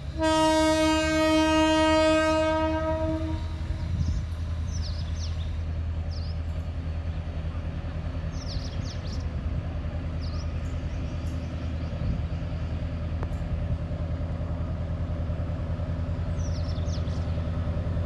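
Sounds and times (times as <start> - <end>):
diesel train engine drone: 0.0 - 18.0
birds chirping: 4.0 - 7.4, 8.0 - 12.9, 16.1 - 18.0.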